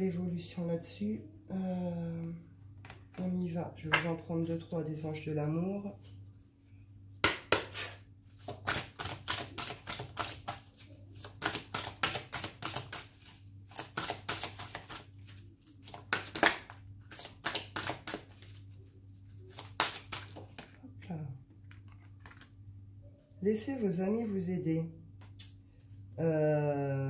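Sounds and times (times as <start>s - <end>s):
cards being shuffled: 7.2s - 20.8s, 21.6s - 22.6s.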